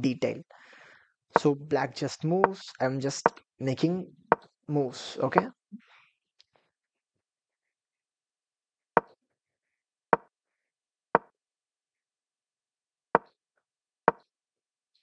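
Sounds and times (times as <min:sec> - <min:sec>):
wooden clack sound effect: 0:14.1 - 0:14.3.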